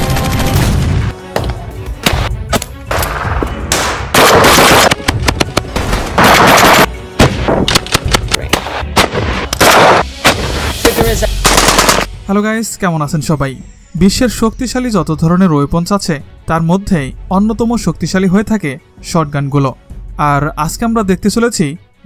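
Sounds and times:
background music: 0:00.0 - 0:22.0
gunfire: 0:02.0 - 0:10.6, 0:11.4 - 0:12.1.

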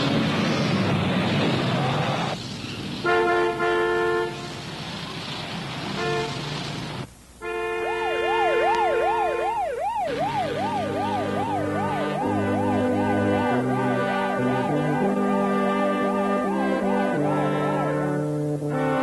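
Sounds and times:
traffic noise: 0:00.0 - 0:19.0
car horn blaring: 0:03.0 - 0:04.5, 0:06.0 - 0:06.4, 0:07.4 - 0:19.0
siren yelping: 0:07.8 - 0:15.2.

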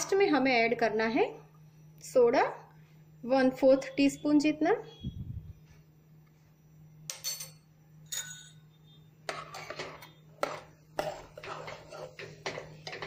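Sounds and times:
ladle clinking and scraping in pot: 0:09.3 - 0:13.0.

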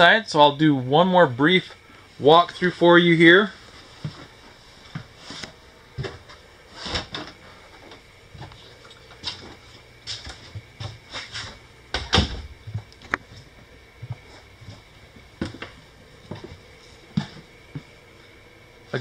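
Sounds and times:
footsteps on trailer floor: 0:03.8 - 0:06.4, 0:09.2 - 0:11.6, 0:12.5 - 0:18.0.

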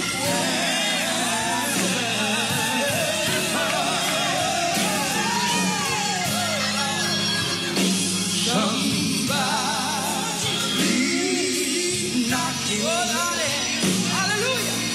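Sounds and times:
instrumental backing chords: 0:00.0 - 0:14.9
person singing with vibrato: 0:00.0 - 0:14.9.

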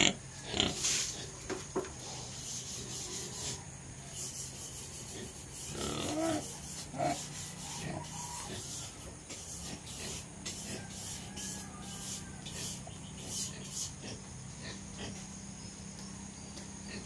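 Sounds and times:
rustling and scraping: 0:00.6 - 0:14.2
pig grunts: 0:05.0 - 0:09.0, 0:12.5 - 0:15.3.

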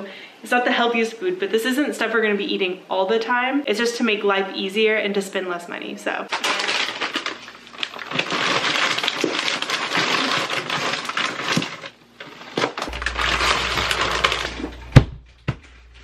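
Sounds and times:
food packaging crinkling and rustling: 0:06.3 - 0:16.0.

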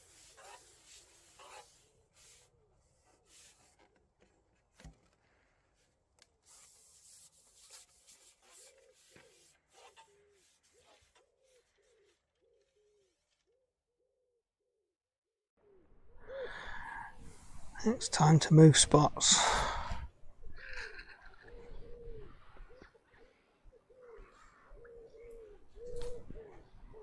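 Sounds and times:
fishing pole rubbing and clicking: 0:00.0 - 0:02.5, 0:06.7 - 0:11.2
pigeon cooing: 0:20.6 - 0:27.0.

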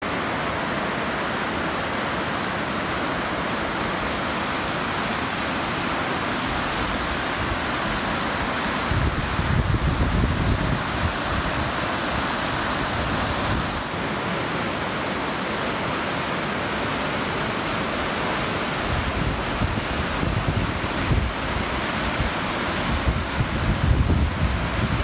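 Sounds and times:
river rapids rushing over rocks: 0:00.0 - 0:25.0
wind rumbling on microphone: 0:06.5 - 0:13.9, 0:18.8 - 0:25.0.

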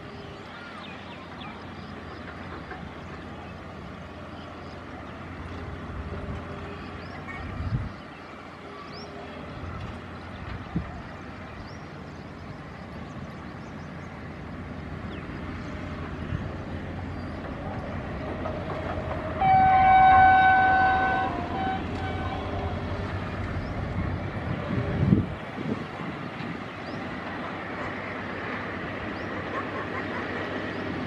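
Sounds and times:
diesel locomotive engine rumble: 0:00.0 - 0:31.0
train horn chord: 0:19.3 - 0:23.2.

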